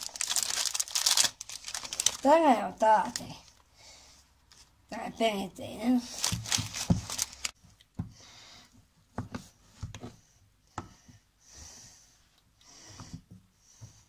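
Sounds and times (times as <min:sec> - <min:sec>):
packaging crackling: 0:00.0 - 0:02.4, 0:06.1 - 0:07.6
soft breath: 0:03.6 - 0:04.4, 0:07.3 - 0:08.8, 0:10.0 - 0:14.0.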